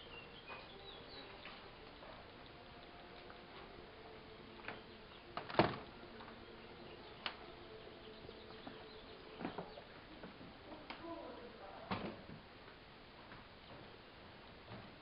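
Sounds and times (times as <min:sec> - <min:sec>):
faint steady hum: 0:00.0 - 0:15.0
door opening: 0:04.6 - 0:06.4.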